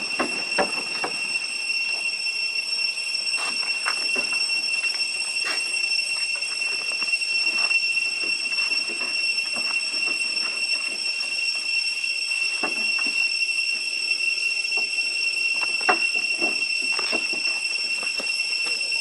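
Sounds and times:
monkeys scuffing on wooden roof: 0.0s - 2.1s, 3.3s - 11.4s, 12.6s - 13.3s, 15.5s - 18.8s
cicadas droning: 0.0s - 19.0s.

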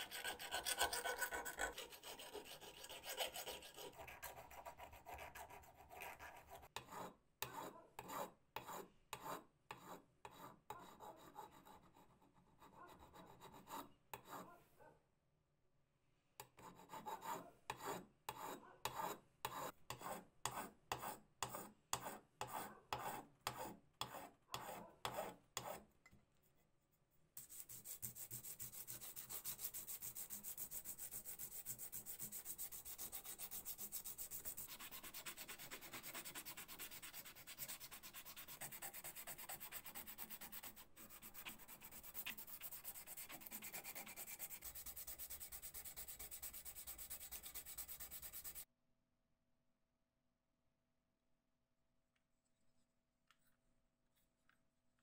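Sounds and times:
file rasping on metal: 0.0s - 11.9s, 16.6s - 25.8s, 27.4s - 48.7s.

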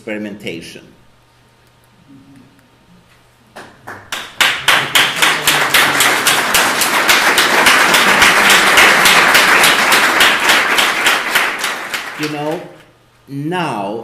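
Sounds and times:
audience applause: 3.8s - 12.8s.

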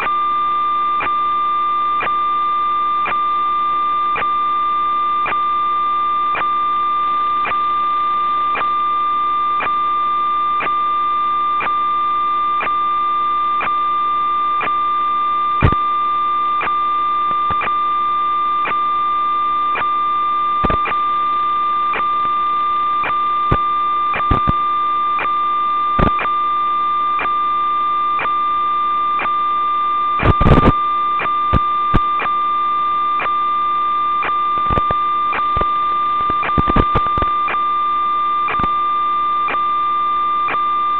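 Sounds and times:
electronic hum and whine: 0.0s - 40.9s
crackles and pops: 15.6s - 16.0s, 16.6s - 17.9s, 20.6s - 21.1s, 21.8s - 26.4s, 30.2s - 32.4s, 34.1s - 37.7s, 38.4s - 38.8s.

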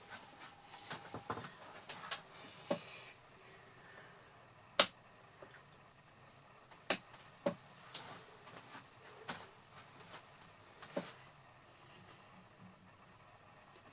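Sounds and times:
sharp clicks: 4.8s - 5.0s.

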